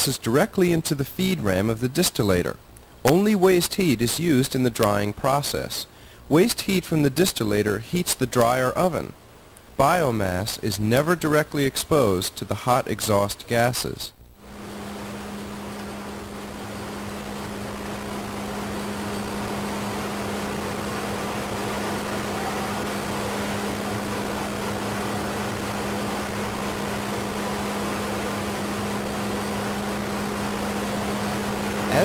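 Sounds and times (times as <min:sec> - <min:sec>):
industrial machinery drone: 0:14.4 - 0:32.0.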